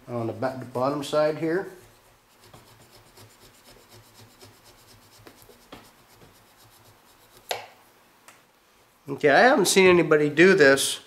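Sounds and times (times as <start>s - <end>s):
knife sawing through rubber: 1.9s - 7.5s.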